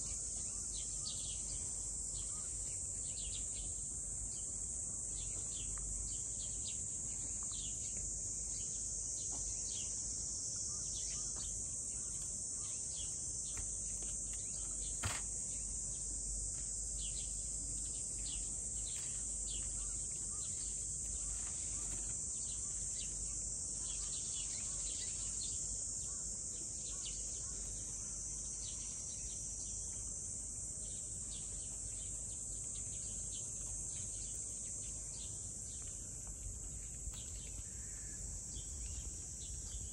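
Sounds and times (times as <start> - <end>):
insect chorus: 0.0 - 39.9
sharp click: 15.0 - 15.3.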